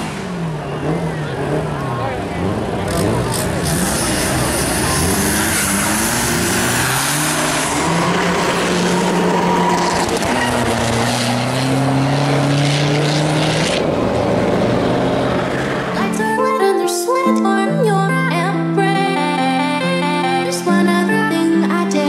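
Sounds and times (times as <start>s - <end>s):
racing car engines accelerating: 0.0s - 16.4s.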